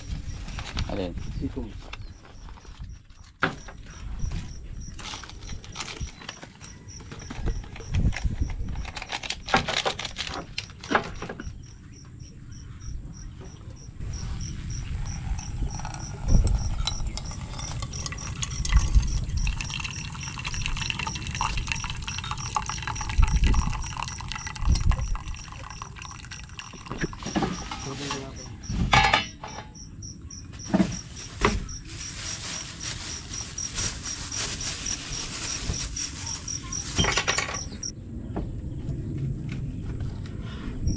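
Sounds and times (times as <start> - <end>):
coffee grounds rattling from glass jar: 15.2 - 28.5
water poured from kettle: 15.8 - 28.3.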